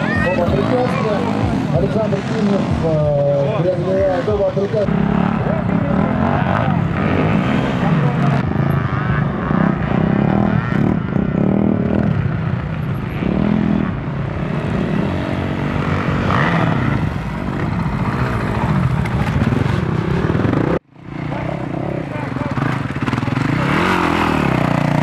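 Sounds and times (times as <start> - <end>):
dirt bike engines revving: 0.0 - 25.0.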